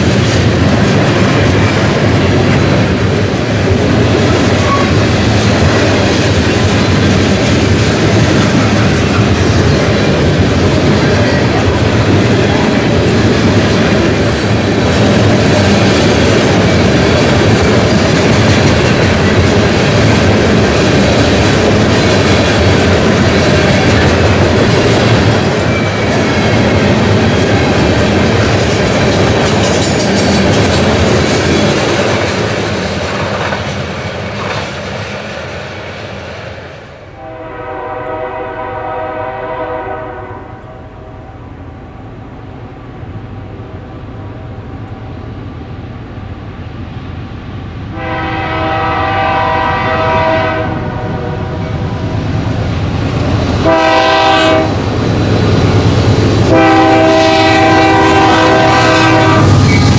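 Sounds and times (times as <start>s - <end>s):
freight train passing: 0.0s - 59.9s
train horn blast: 37.2s - 41.0s, 47.9s - 51.7s, 53.6s - 54.8s, 56.5s - 59.7s.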